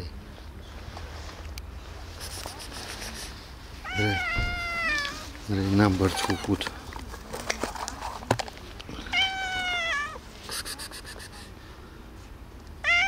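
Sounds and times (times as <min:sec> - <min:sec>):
cat meowing: 0:03.8 - 0:05.3, 0:09.1 - 0:10.2.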